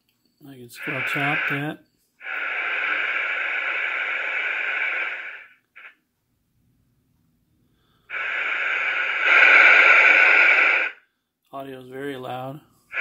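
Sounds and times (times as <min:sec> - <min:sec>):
radio static hiss: 0:00.5 - 0:06.0, 0:08.1 - 0:11.0.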